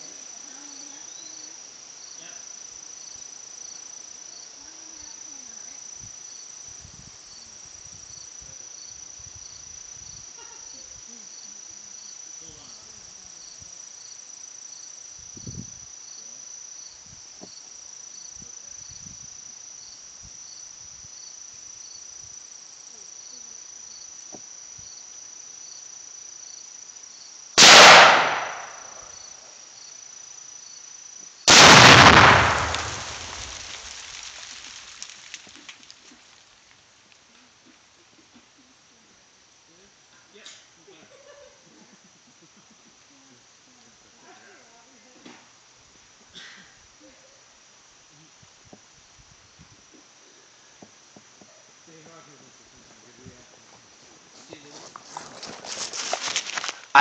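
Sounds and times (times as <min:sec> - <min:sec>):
insects chirping: 0:00.0 - 0:57.0
rifle shot: 0:27.6 - 0:29.1, 0:31.5 - 0:33.9.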